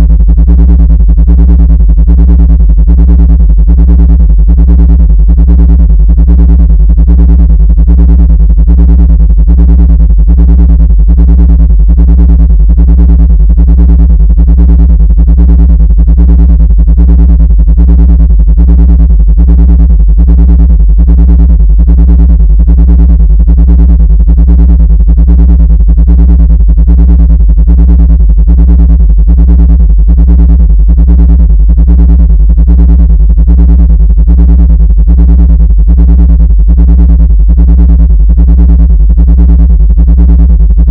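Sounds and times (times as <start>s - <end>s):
pulsing synthesized drone: 26.9s - 40.9s.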